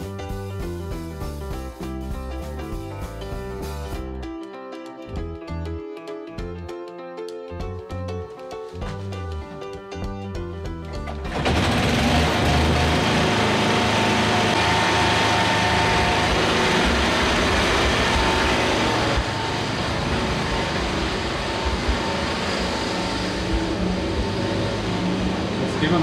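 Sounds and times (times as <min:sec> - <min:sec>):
generator engine running: 0:10.7 - 0:26.0.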